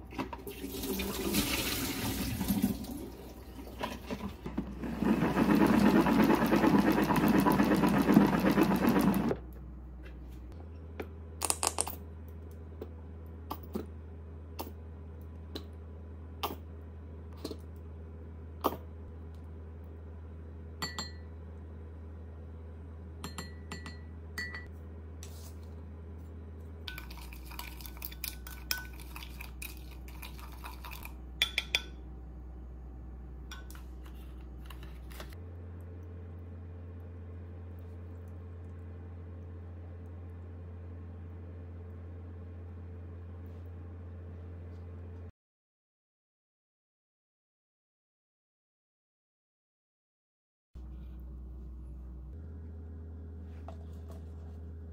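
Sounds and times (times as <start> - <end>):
salad spinner whirring: 4.7 - 9.4
metal spoon clinking on glass mug: 23.2 - 24.6.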